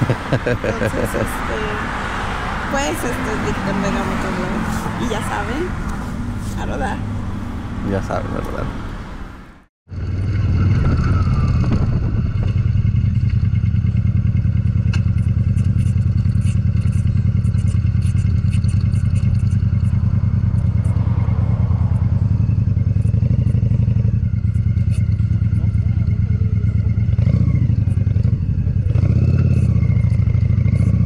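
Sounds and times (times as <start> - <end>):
motorcycle engine running: 9.9 - 31.0.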